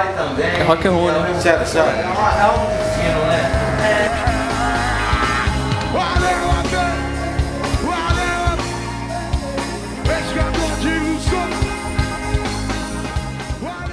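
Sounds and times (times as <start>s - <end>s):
bass line: 1.3s - 7.7s.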